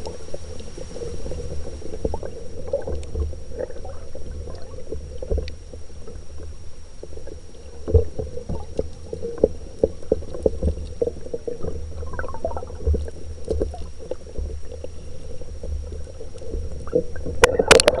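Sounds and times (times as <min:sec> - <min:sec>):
muffled underwater stream rumble: 0:00.0 - 0:18.0
pebbles clicking underwater: 0:00.0 - 0:18.0.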